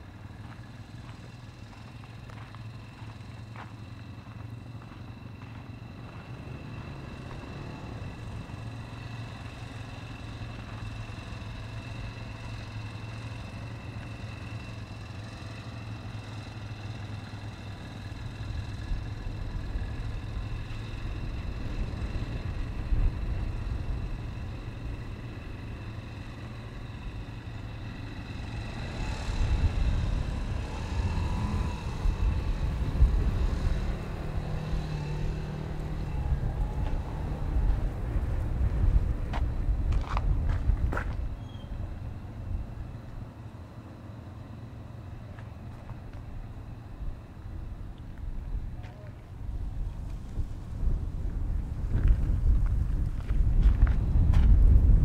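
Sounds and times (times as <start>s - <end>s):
low engine hum: 0.0s - 55.0s.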